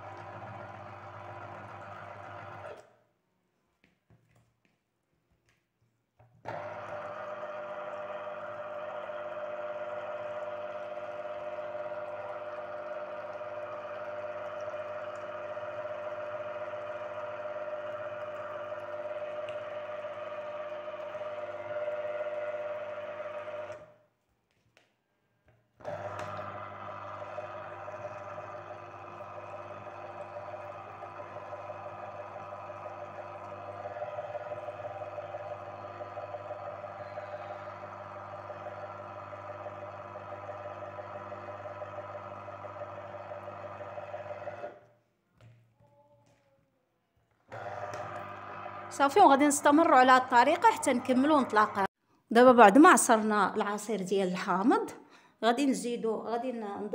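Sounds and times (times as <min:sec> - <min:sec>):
electric juicer motor humming: 0:00.0 - 0:03.0, 0:06.4 - 0:24.0, 0:25.8 - 0:44.9, 0:47.4 - 0:51.9.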